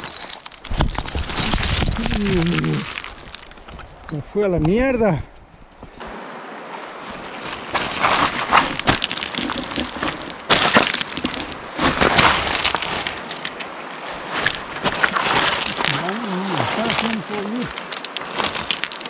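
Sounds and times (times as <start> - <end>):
footsteps crunching on stones: 0.0 - 4.2, 7.4 - 13.6, 14.2 - 19.0.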